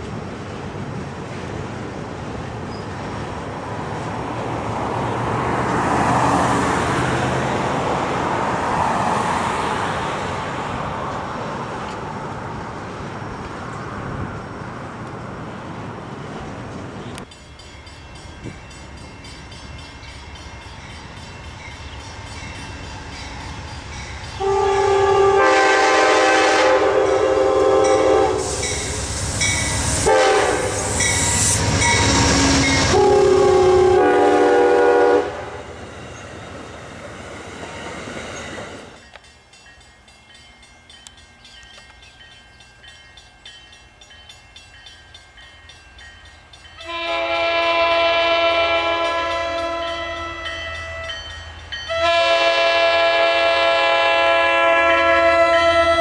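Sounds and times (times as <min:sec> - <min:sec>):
freight train rumbling on bridge: 0:00.0 - 0:56.0
locomotive air horn blasts: 0:24.4 - 0:28.9, 0:29.9 - 0:35.6, 0:46.8 - 0:51.2, 0:51.9 - 0:56.0.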